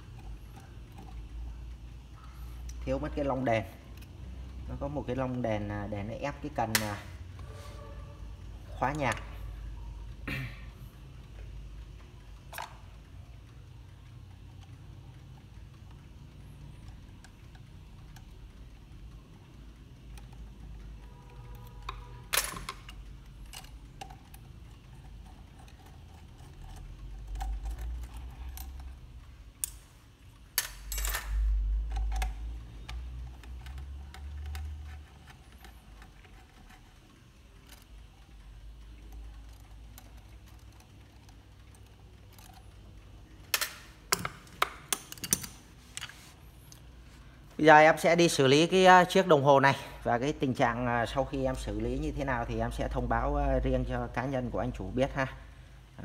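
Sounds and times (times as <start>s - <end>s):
small metallic clicks and taps: 10.9s - 47.0s.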